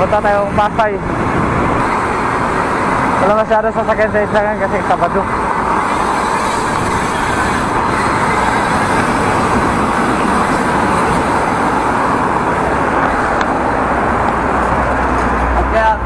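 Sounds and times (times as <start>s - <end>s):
bicycle road noise: 0.0s - 16.0s
road traffic: 0.0s - 16.0s
rushing wind: 0.0s - 16.0s.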